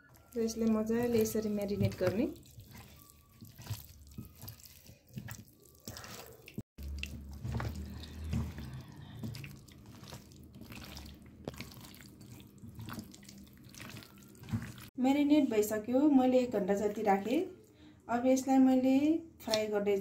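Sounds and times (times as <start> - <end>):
hand squishing meat in marinade: 0.0 - 15.0.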